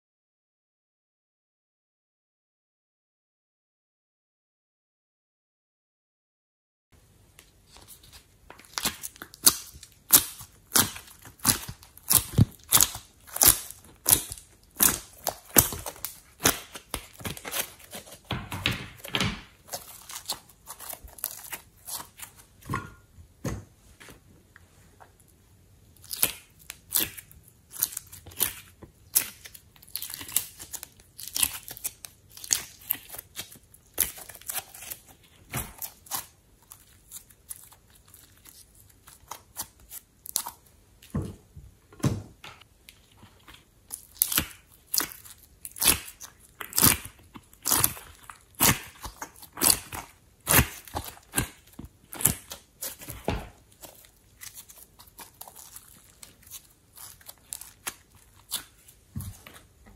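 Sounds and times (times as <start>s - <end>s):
hands squishing clay and slime: 7.6s - 22.8s, 25.9s - 41.2s, 42.8s - 59.9s.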